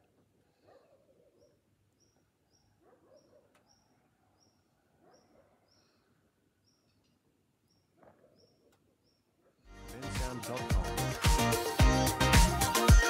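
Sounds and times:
faint high bird chirp: 0:01.3 - 0:09.3.

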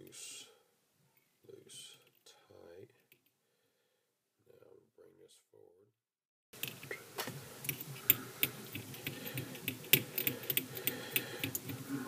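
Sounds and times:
thread clicking around hook: 0:07.6 - 0:11.8.

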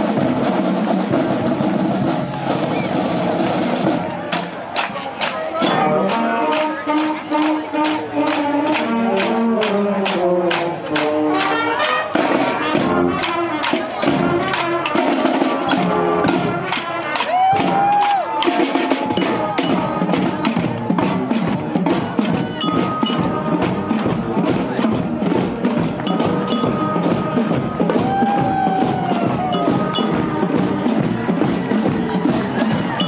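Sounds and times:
snare drums beat: 0:00.0 - 0:33.0
trumpets: 0:05.6 - 0:20.6, 0:26.0 - 0:33.0.

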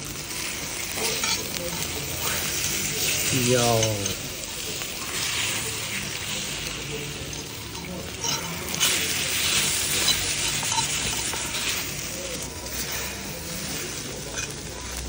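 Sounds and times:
eggs and beef sizzling in pan: 0:00.0 - 0:15.0
fork clinking against pan: 0:01.0 - 0:02.5, 0:06.2 - 0:11.9.

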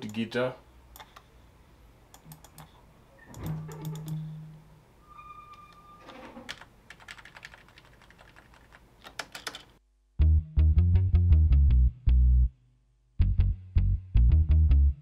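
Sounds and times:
mouse clicks: 0:02.1 - 0:04.2
keyboard keystrokes: 0:06.5 - 0:09.7.

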